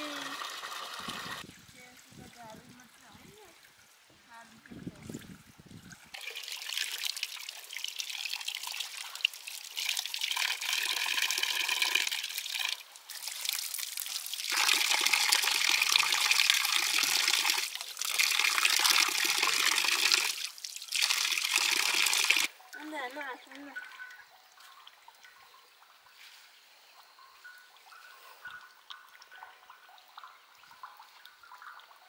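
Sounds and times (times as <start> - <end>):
water running and splashing: 0.0 - 25.4.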